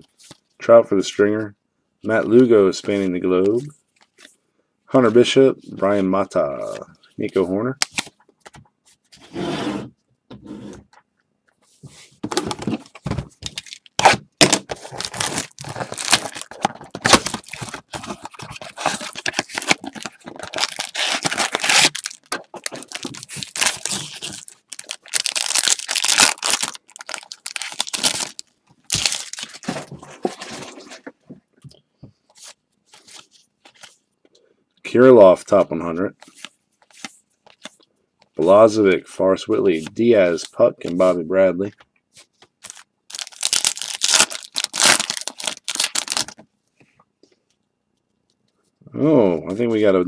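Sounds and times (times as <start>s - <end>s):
wrapper crinkling and ripping: 13.6s - 29.8s, 42.6s - 46.4s.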